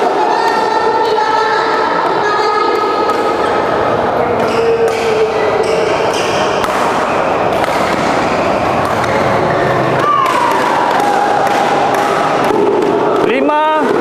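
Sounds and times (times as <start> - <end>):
sports hall hubbub: 0.0 - 14.0
racket hitting shuttlecock: 2.7 - 3.7, 4.4 - 14.0
shoe squeak on court: 4.4 - 9.4.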